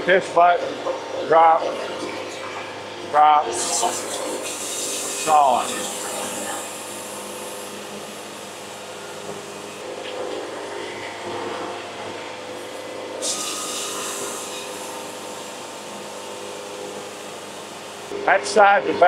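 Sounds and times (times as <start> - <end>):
sawmill machine hum: 0.0 - 19.0
saw blade hissing through wood: 13.2 - 14.9.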